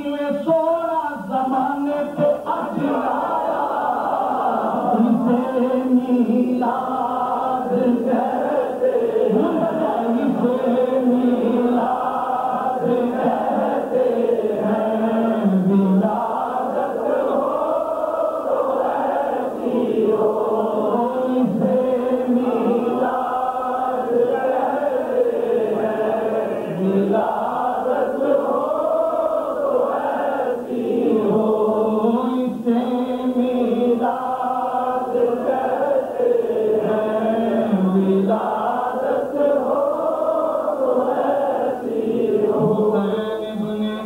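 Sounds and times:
man singing devotional poetry: 0.0 - 3.8, 4.6 - 16.4, 20.5 - 23.3, 26.7 - 28.5, 31.3 - 35.1, 36.8 - 39.6, 42.4 - 44.0.

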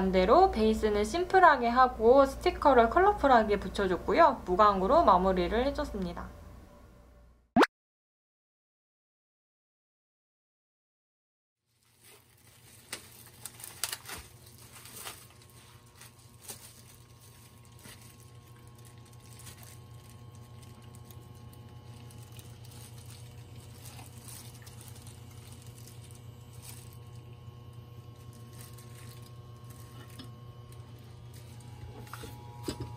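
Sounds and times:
plastic packaging crinkling: 11.7 - 32.6
steady low hum: 12.7 - 32.9.

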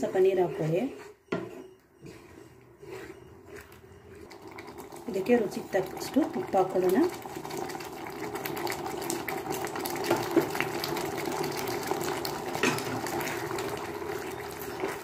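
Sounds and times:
thick gravy bubbling and popping: 2.8 - 15.0.

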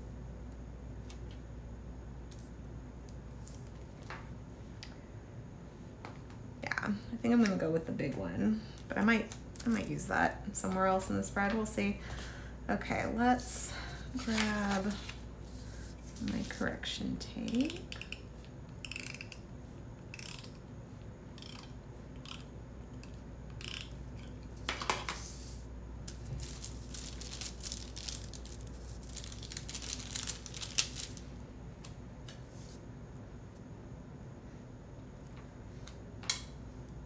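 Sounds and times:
paper rustling: 14.1 - 16.7, 25.0 - 31.3.

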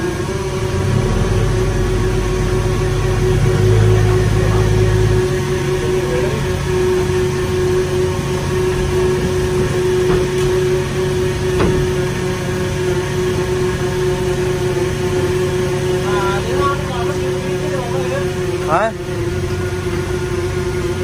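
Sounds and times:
machinery droning hum: 0.0 - 21.0
short knock: 11.5 - 12.1.

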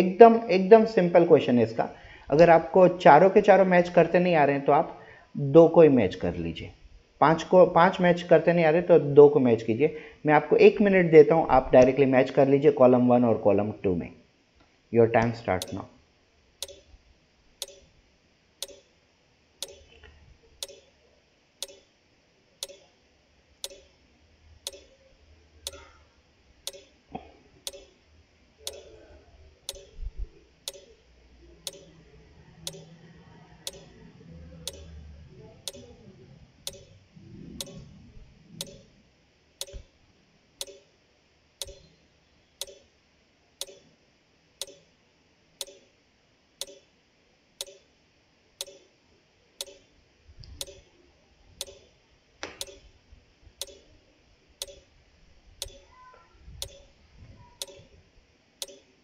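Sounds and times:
timer ticking: 15.6 - 15.8, 16.6 - 16.9, 17.6 - 17.9, 18.6 - 18.9, 19.6 - 19.9, 20.6 - 20.9, 21.6 - 21.9, 22.6 - 22.9, 23.6 - 24.0, 24.6 - 25.0, 25.6 - 25.8, 26.6 - 26.9, 27.6 - 27.9, 28.7 - 28.9, 29.7 - 30.0, 30.6 - 31.0, 31.6 - 32.0, 32.6 - 32.9, 33.7 - 34.0, 34.6 - 34.9, 35.7 - 35.9, 36.7 - 37.0, 37.6 - 37.8, 38.6 - 38.9, 39.6 - 39.8, 40.6 - 40.8, 41.6 - 41.9, 42.6 - 42.9, 43.6 - 43.8, 44.6 - 44.9, 45.6 - 45.9, 46.6 - 46.8, 47.6 - 47.9, 48.6 - 48.8, 49.6 - 49.9, 50.6 - 50.8, 51.6 - 51.9, 52.6 - 52.8, 53.6 - 53.9, 54.6 - 54.9, 55.6 - 55.9, 56.6 - 56.9, 57.6 - 57.9, 58.6 - 58.9.

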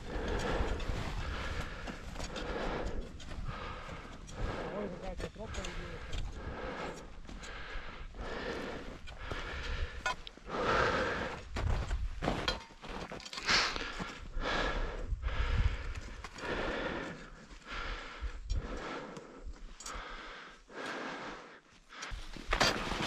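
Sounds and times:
person breathing hard: 0.0 - 12.1, 13.4 - 22.4
wind rumble on microphone: 14.4 - 16.1.

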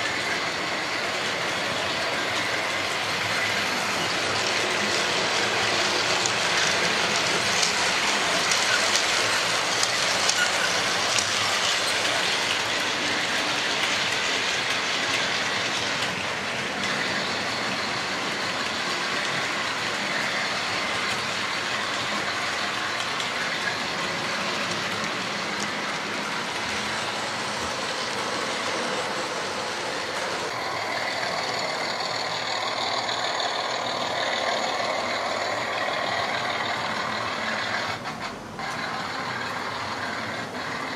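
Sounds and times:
model trains rattling on track: 0.0 - 40.9.

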